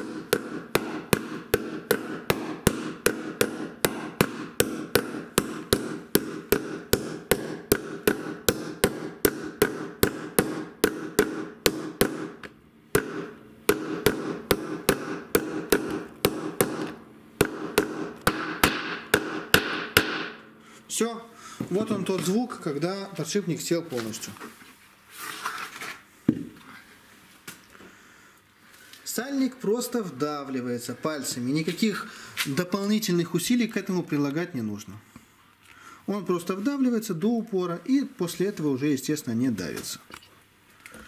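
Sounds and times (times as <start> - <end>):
hammer tapping on steel bearing: 0.0 - 20.4.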